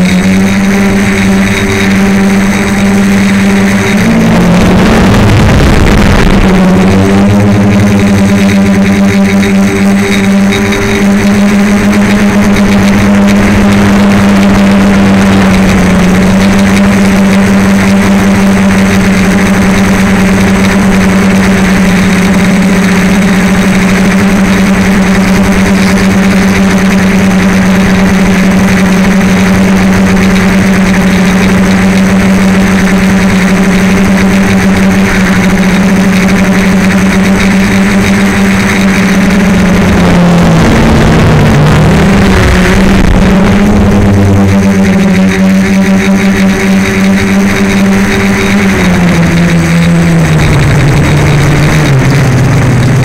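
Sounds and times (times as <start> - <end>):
quadcopter propellers humming: 0.0 - 53.0.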